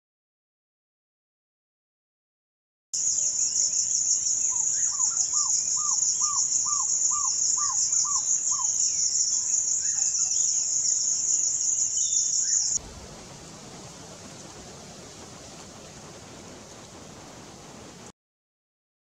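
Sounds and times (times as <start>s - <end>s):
high-pitched insect chorus: 3.0s - 15.2s
owlet calling: 4.4s - 12.8s.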